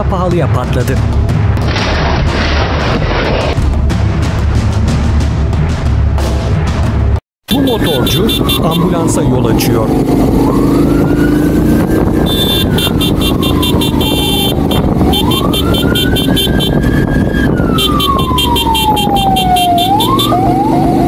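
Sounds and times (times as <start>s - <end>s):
ambulance siren wailing: 7.5s - 21.0s
motorcycle engine rumble: 7.5s - 21.0s
siren yelp: 7.5s - 21.0s
wind: 7.5s - 21.0s
rapid high beeping pulses: 12.3s - 16.6s.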